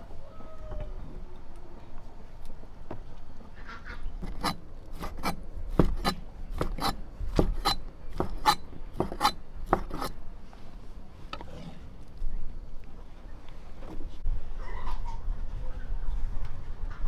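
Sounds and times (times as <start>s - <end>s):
cleaver chopping on board: 4.2s - 10.1s.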